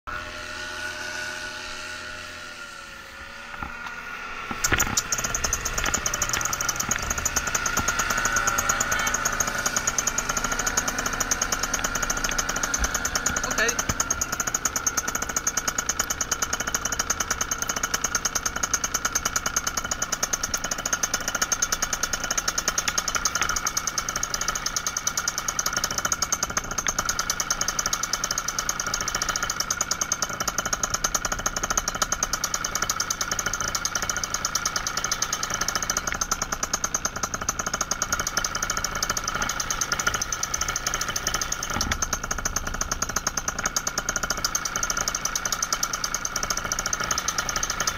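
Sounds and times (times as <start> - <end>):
paramotor engine running: 0.1 - 47.9.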